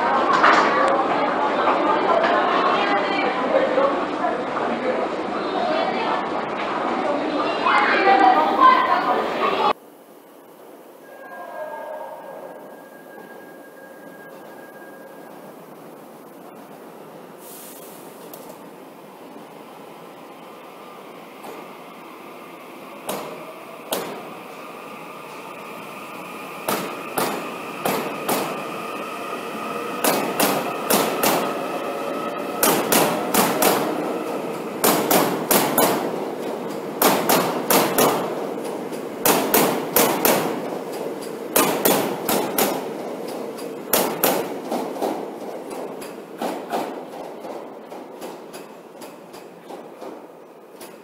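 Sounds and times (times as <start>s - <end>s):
train rumbling: 10.4s - 51.0s
train wheels clacking over rail joints: 26.6s - 28.6s, 30.0s - 31.6s, 32.6s - 34.0s, 34.8s - 51.0s.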